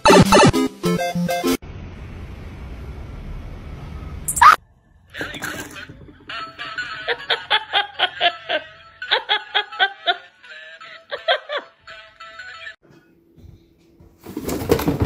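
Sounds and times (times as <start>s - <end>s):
person laughing hard: 5.8s - 12.8s.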